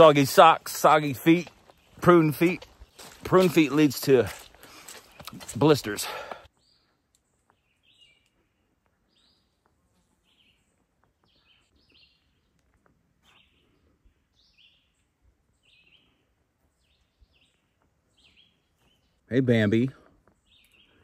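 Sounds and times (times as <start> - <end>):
faint bird chirping: 4.8 - 21.0.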